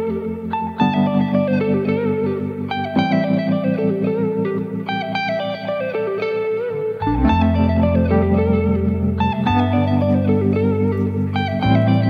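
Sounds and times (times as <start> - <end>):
guitar melody over low chords: 0.0 - 12.0.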